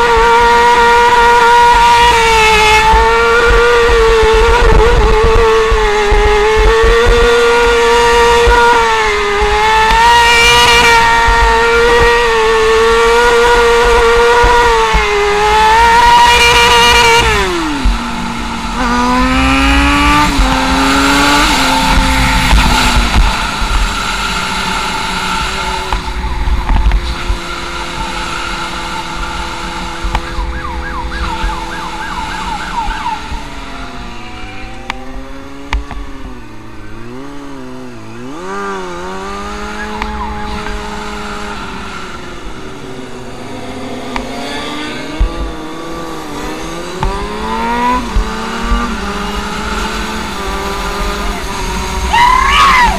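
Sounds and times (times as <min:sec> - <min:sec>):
motorcycle engine revving: 0:00.0 - 0:52.9
wind rumbling on microphone: 0:02.1 - 0:09.7, 0:13.9 - 0:28.4
police siren wailing: 0:27.8 - 0:35.3, 0:49.9 - 0:52.9.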